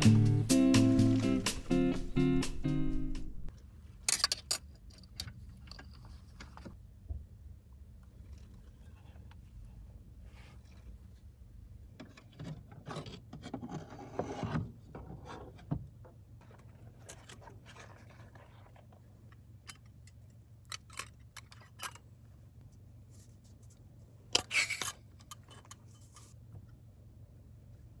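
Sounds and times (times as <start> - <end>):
low steady hum: 0.0 - 28.0
soft case rustling and scraping: 16.4 - 19.3.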